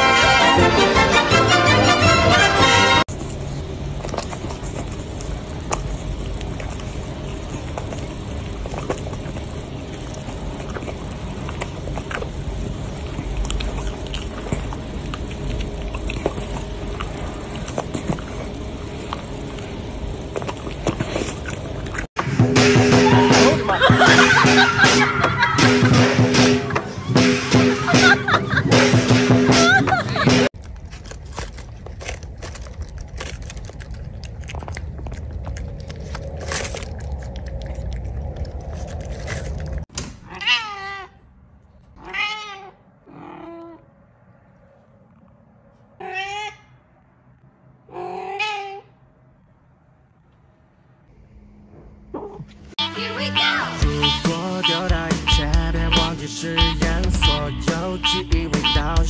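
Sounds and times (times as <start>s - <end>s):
puppy licking and chewing: 3.1s - 22.1s, 30.6s - 39.9s
cat meowing: 40.3s - 41.2s, 42.0s - 43.8s, 46.0s - 46.8s, 47.9s - 48.9s.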